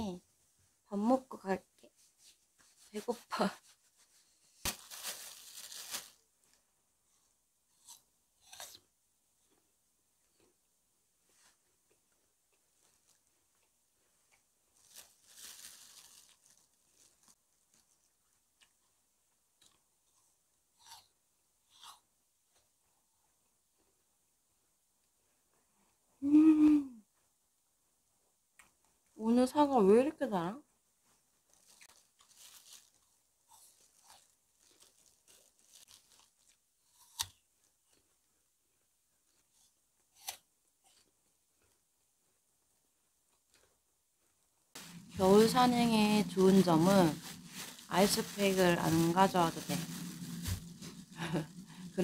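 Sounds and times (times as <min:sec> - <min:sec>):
food packaging rustling: 0:02.2 - 0:06.6, 0:14.7 - 0:18.1, 0:31.0 - 0:37.0, 0:44.8 - 0:52.0
apple being bitten and chewed: 0:07.1 - 0:09.7, 0:19.6 - 0:22.7, 0:31.4 - 0:41.9.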